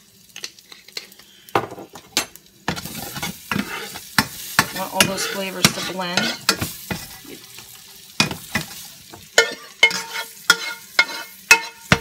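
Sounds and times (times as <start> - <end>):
faint sizzle of sauteing: 0.0 - 12.0
metal spoon clinking on pan: 9.3 - 12.0.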